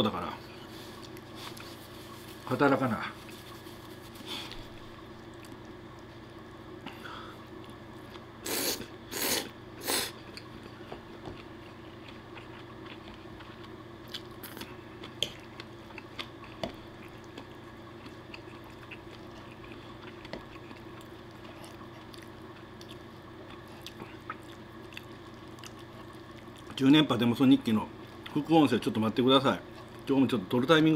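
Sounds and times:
chewing: 0.8s - 2.5s, 3.2s - 6.3s, 10.2s - 26.8s
man slurping noodles: 8.4s - 10.2s.

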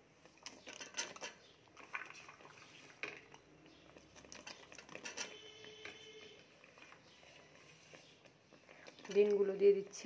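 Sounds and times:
curry simmering: 0.0s - 10.0s
utensils clinking on pan: 4.4s - 6.0s.

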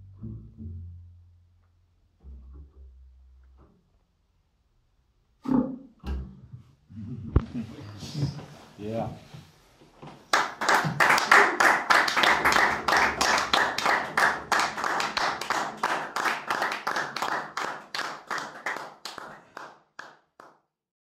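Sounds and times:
audience applause: 10.3s - 20.5s.

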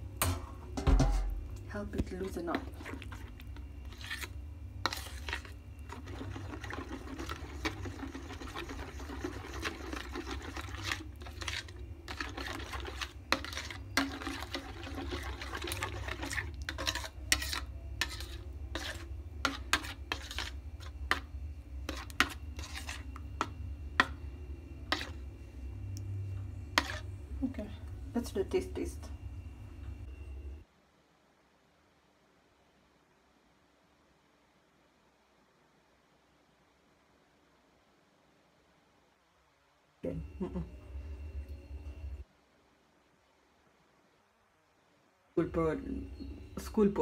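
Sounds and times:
spoon scraping bowl: 0.9s - 25.7s, 26.5s - 27.4s.

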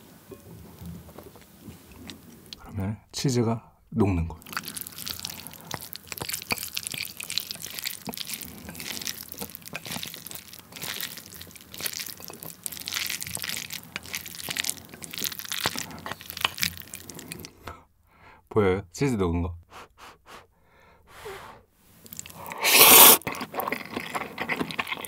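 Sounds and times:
chopsticks stirring sticky noodles: 4.4s - 17.4s.

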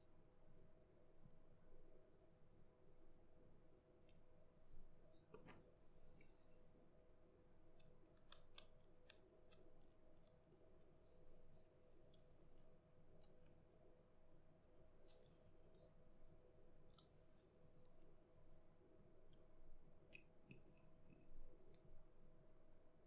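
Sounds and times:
faint steady hum: 0.0s - 23.0s
screwdriver clicking and scratching: 7.8s - 11.0s.

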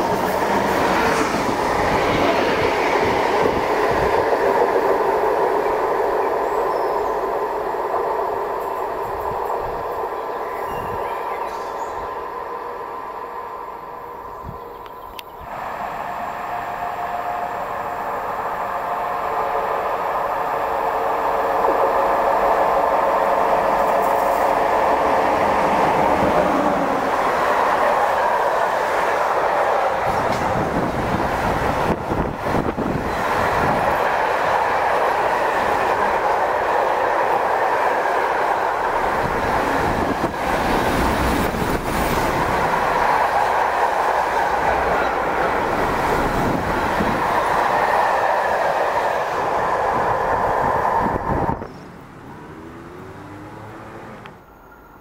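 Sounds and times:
freight train rolling rumble: 0.0s - 55.0s
train wheel clatter: 27.3s - 50.4s.

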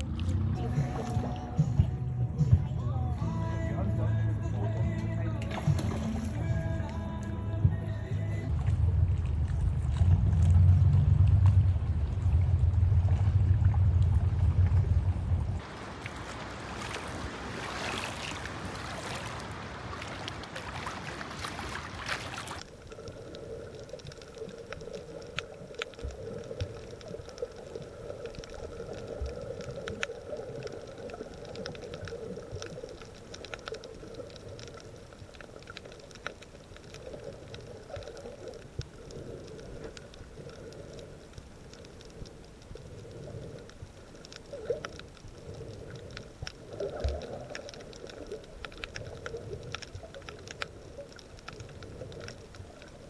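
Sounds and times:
faint underwater clicks and crackles: 0.0s - 2.0s, 2.6s - 53.0s
water rushing at shoreline: 0.0s - 2.0s, 4.6s - 53.0s
low underwater hum: 0.0s - 53.0s
rushing wind: 11.6s - 22.6s.

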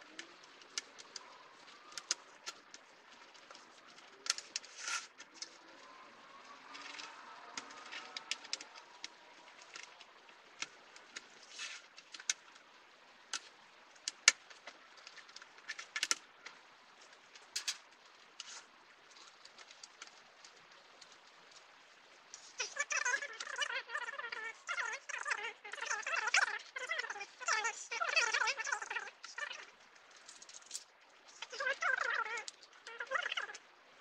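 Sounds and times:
light clicks and taps: 0.0s - 6.0s, 6.6s - 12.7s, 13.3s - 21.7s.

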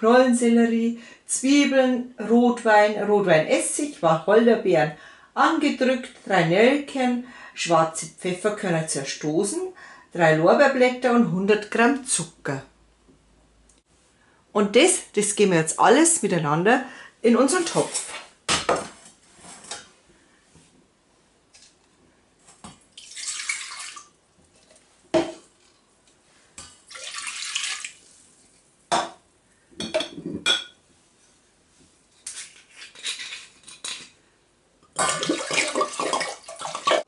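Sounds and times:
liquid pouring into metal pot: 22.9s - 24.8s, 26.9s - 28.0s.

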